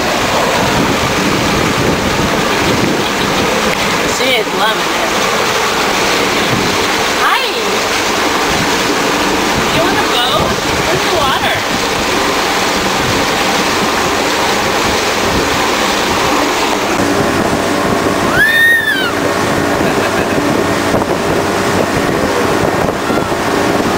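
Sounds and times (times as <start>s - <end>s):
boat motor running: 0.0s - 23.9s
water rushing along hull: 0.0s - 23.9s
wind buffeting microphone: 0.0s - 23.9s
toddler squealing: 18.3s - 19.2s.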